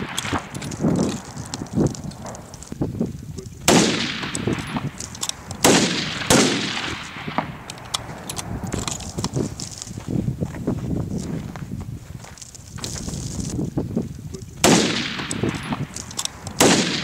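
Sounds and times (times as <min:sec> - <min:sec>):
rifle shots with echo: 0:00.0 - 0:02.5, 0:03.6 - 0:09.2, 0:14.6 - 0:17.0.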